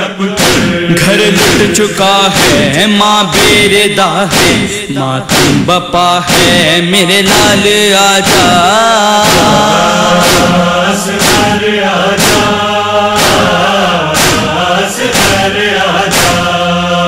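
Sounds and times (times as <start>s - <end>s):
men chanting: 0.0s - 17.0s
steady beat: 0.4s - 16.6s.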